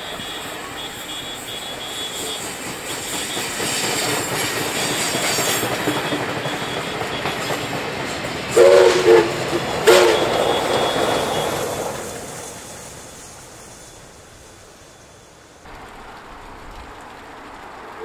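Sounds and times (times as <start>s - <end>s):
steam locomotive whistle blasts: 0.0s - 7.8s, 8.5s - 12.6s
train carriages clickety-clack: 0.0s - 18.0s.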